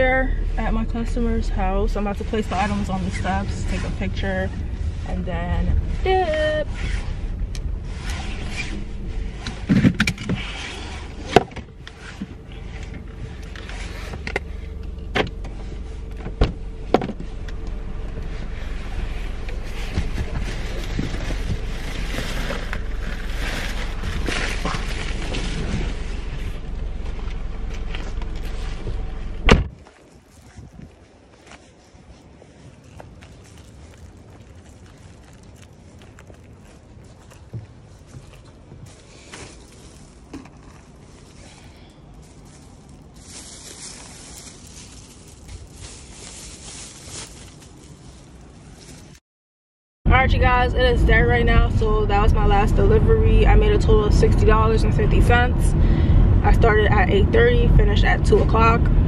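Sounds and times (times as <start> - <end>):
car cabin hum: 0.0 - 29.8, 50.1 - 59.0
low handling rumble: 0.0 - 49.2, 50.1 - 59.0
rustling and small knocks: 6.9 - 49.2
faint footsteps: 11.8 - 49.2
car door slamming: 29.4 - 29.7
plastic bag crinkling: 29.7 - 49.2.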